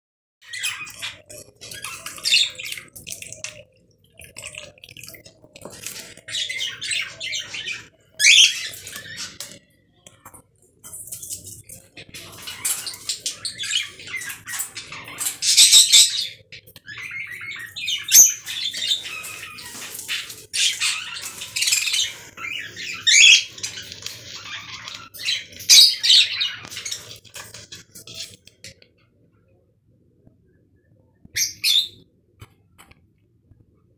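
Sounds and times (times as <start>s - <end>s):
bird splashing in water: 0.9s - 7.3s.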